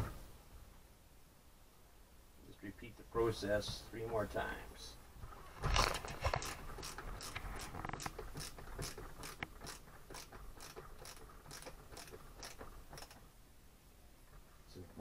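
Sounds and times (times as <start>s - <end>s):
screwdriver ratchet clicking: 6.4s - 13.2s.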